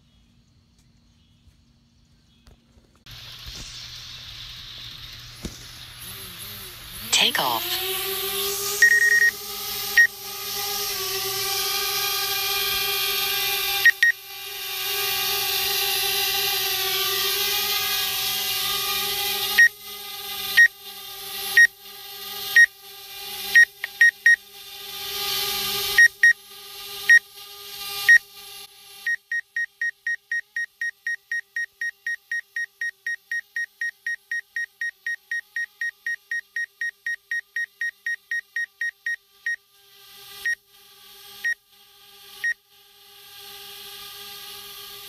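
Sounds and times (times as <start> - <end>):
drone propellers humming: 3.1 - 29.3
electronic warning beeps: 8.8 - 9.4, 13.8 - 14.2, 23.6 - 24.4, 26.0 - 26.4, 29.1 - 39.6.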